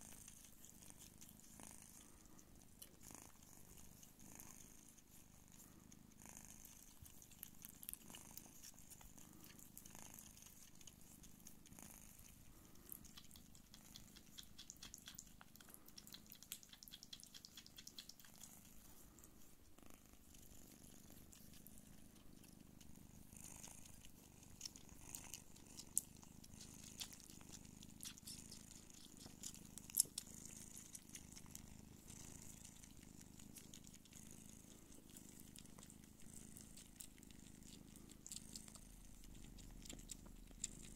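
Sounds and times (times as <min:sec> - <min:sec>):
kittens suckling clicks: 0:00.0 - 0:19.4, 0:20.2 - 0:40.9
cats purring: 0:00.0 - 0:40.9.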